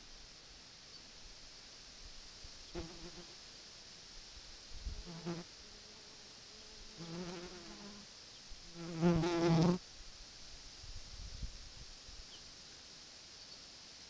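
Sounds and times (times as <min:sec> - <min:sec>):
flying insect buzzing: 0:02.8 - 0:03.4, 0:04.8 - 0:06.0, 0:06.6 - 0:08.0, 0:08.7 - 0:09.8.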